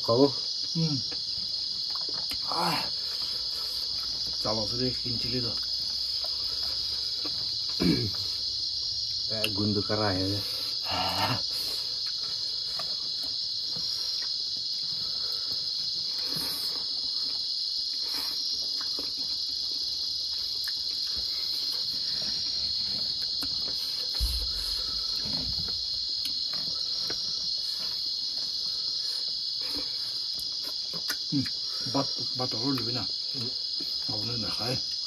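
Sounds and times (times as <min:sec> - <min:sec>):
high-pitched insect chorus: 0:00.0 - 0:35.0
low thump: 0:24.1 - 0:25.0.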